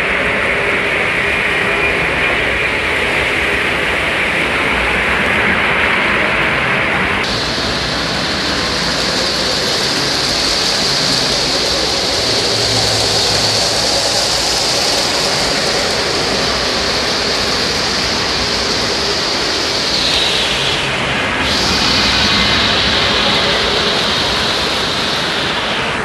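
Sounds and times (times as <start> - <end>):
model trains rolling on track: 0.0 - 26.0.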